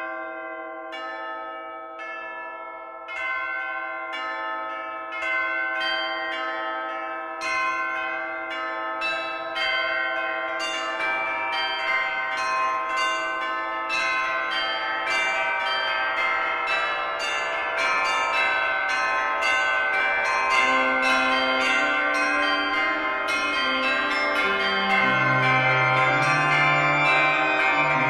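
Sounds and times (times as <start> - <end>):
bells ringing: 0.0 - 28.0.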